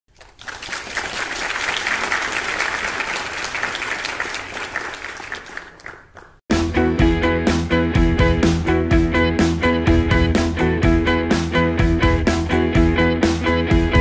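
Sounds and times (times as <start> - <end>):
crowd applauding: 0.1 - 6.4.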